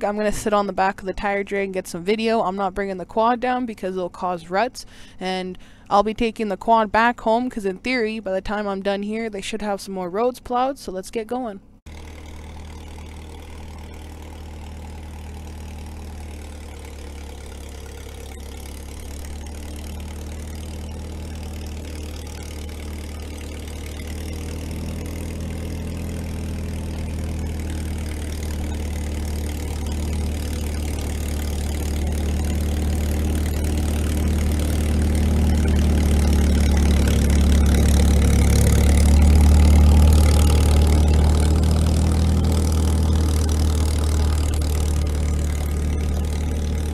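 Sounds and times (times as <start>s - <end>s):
bulldozer engine running: 11.9s - 46.9s.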